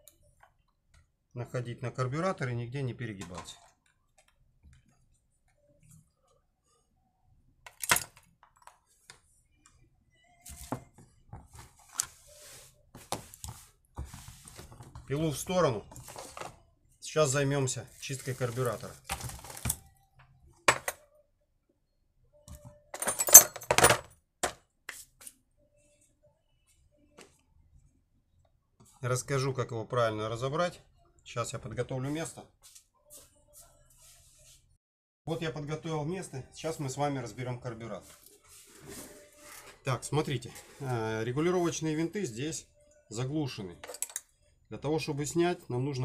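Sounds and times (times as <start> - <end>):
metal tools clinking in tray: 23.0 - 24.1, 43.8 - 44.2.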